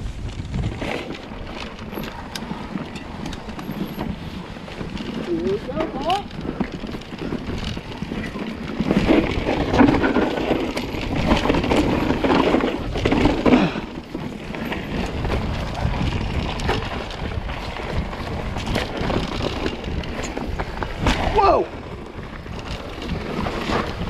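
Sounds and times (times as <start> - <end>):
bike tyres rattling on dirt: 0.0 - 24.0
sharp knocks from bike: 18.6 - 21.5.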